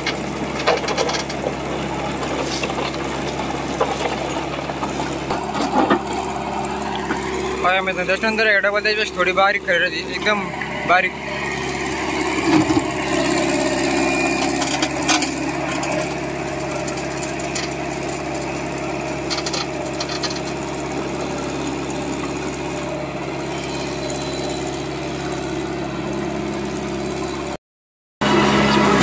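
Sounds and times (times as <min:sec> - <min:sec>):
diesel engine running: 0:00.0 - 0:27.6, 0:28.2 - 0:29.0
metal clanks: 0:19.2 - 0:20.6.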